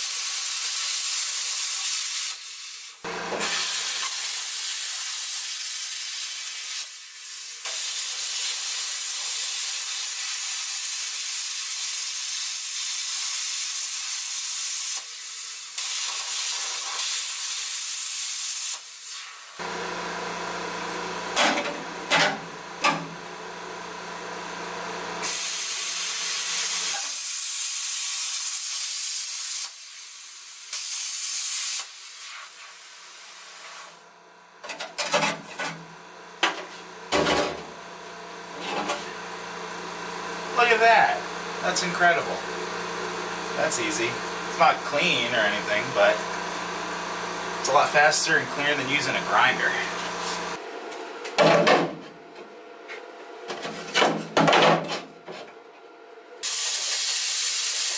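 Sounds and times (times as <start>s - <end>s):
plasma cutter hissing: 0.0s - 19.6s, 25.2s - 34.0s, 43.3s - 46.4s, 47.6s - 50.6s, 56.4s - 57.9s.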